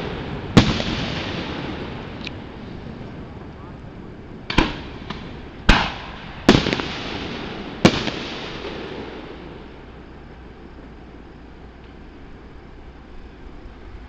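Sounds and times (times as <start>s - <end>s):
firework shells booming: 0.0s - 12.2s
small firework pops: 4.5s - 7.2s.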